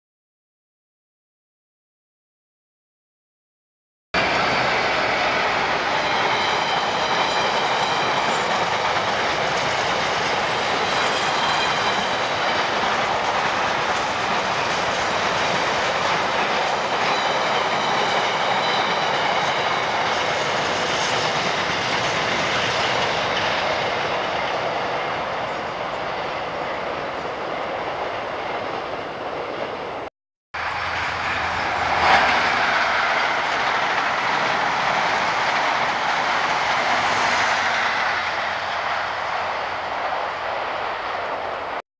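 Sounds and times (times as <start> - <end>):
high thin wheel squeal: 4.2 - 8.9, 9.8 - 13.4, 14.8 - 24.8
train wagons clickety-clack: 4.2 - 30.0, 30.6 - 41.7
passenger train passing: 4.2 - 41.8.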